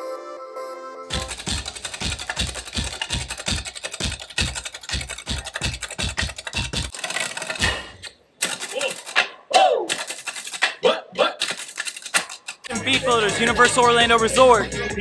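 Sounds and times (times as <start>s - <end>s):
drumming on wooden plank: 1.1s - 6.9s
steady bass beat: 12.7s - 15.0s.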